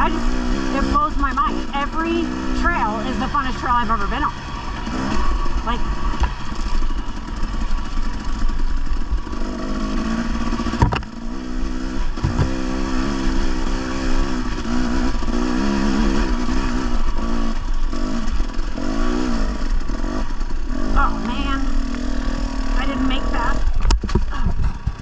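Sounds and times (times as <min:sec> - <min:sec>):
dirt bike engine revving: 0:00.0 - 0:25.0
sharp knocks: 0:10.8 - 0:11.1, 0:12.2 - 0:12.6.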